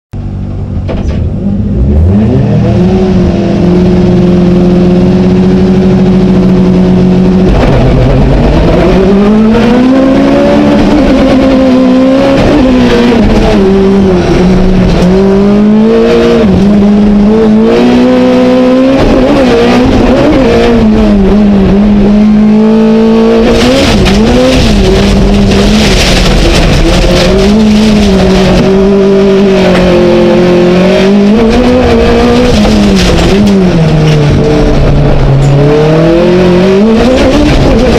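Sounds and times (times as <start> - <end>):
racing car engine revving: 0.2 - 37.9.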